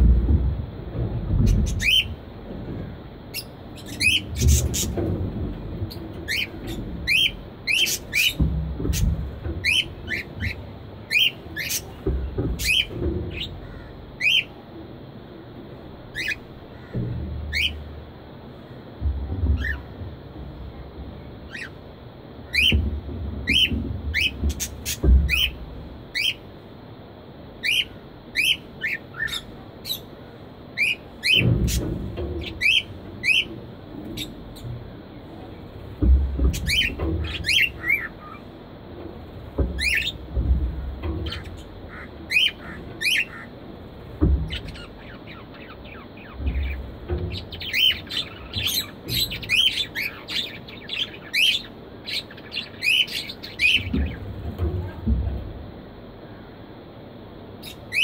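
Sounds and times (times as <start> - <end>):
low rumbles: 0.0 - 58.0
budgerigars chirping and squawking: 1.4 - 2.2, 3.3 - 5.1, 5.8 - 14.5, 16.1 - 17.9, 19.6 - 19.9, 21.5 - 21.8, 22.4 - 22.8, 23.4 - 26.5, 27.6 - 30.1, 30.8 - 34.7, 36.4 - 38.5, 39.6 - 40.2, 41.1 - 43.5, 44.2 - 54.3, 57.6 - 58.0.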